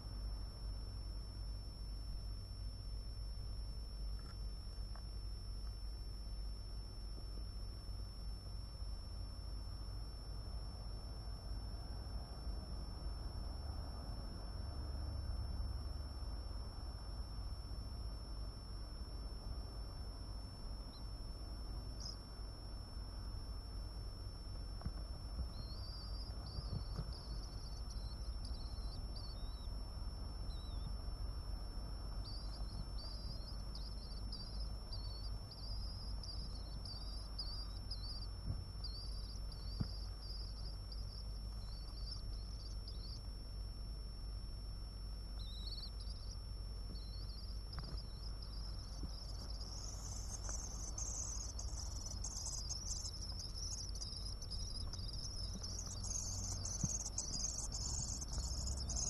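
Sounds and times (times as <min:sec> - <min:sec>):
high-pitched electrical whine: 0:00.0 - 0:59.0
low hum: 0:00.0 - 0:59.0
chicks twittering: 0:25.4 - 0:29.7, 0:30.5 - 0:30.9, 0:32.2 - 0:43.2, 0:45.4 - 0:59.0.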